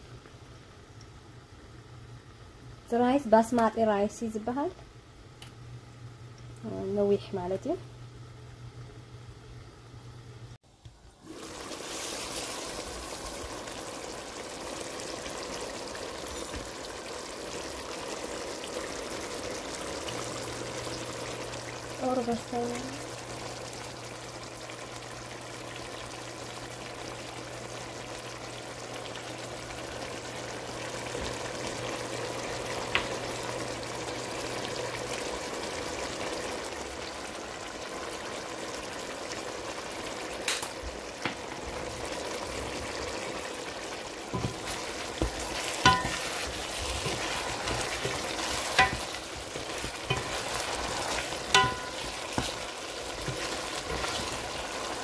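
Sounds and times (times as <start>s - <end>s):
curry sizzling and bubbling in pot: 0.0s - 55.0s
spoon knocking against pot: 45.2s - 46.2s, 48.0s - 49.2s, 51.5s - 52.6s.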